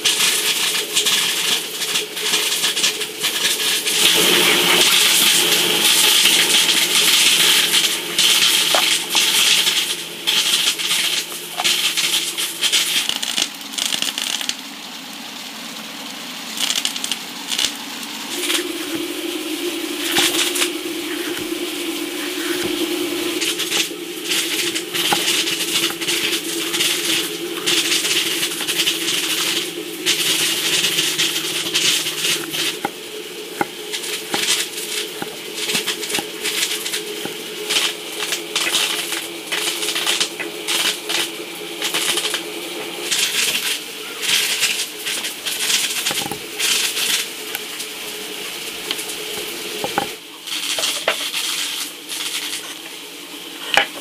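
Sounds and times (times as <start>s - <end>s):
steady low hum: 18.0s - 43.2s.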